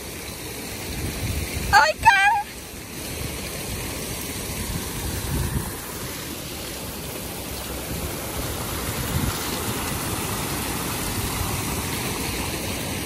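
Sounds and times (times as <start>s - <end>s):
fountain water splashing: 0.0s - 13.0s
wind rumble on microphone: 0.9s - 2.1s, 4.5s - 6.1s, 7.8s - 10.0s.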